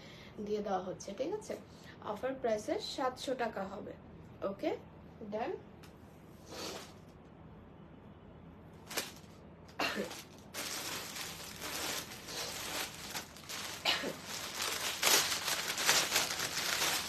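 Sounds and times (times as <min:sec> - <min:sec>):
plastic bag rustling and crinkling: 0:08.8 - 0:17.0.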